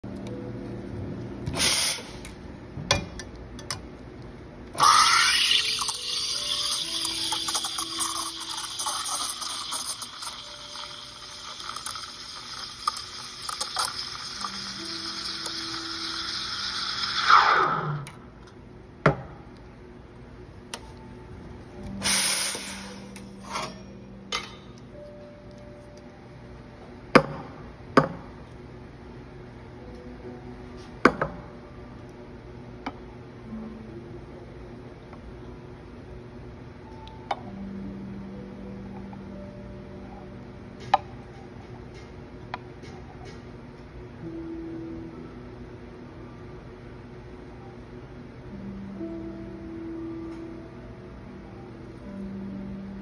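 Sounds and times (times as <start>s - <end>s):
steaming milk in metal pitcher: 4.8s - 17.6s
steam wand hissing: 22.0s - 23.0s.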